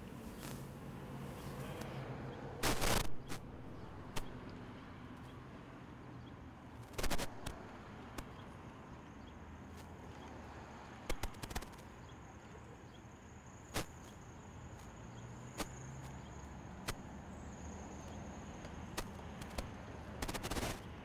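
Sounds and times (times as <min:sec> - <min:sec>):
sharp clicks and knocks: 0:11.1 - 0:11.8.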